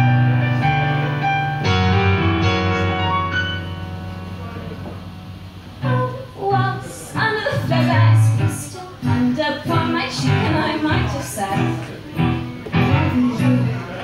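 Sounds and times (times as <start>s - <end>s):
acoustic guitar: 0.0s - 14.0s
piano chords: 0.0s - 14.0s
woman singing: 5.8s - 11.9s, 12.8s - 14.0s.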